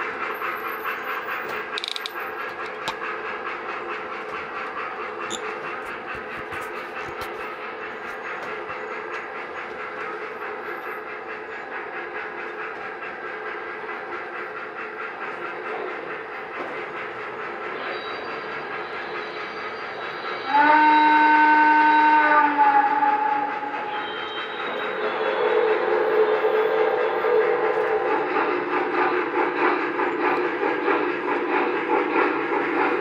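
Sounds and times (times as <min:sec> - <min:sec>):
model train wheels rolling: 0:00.0 - 0:20.5
steam whistle chord: 0:20.3 - 0:23.6.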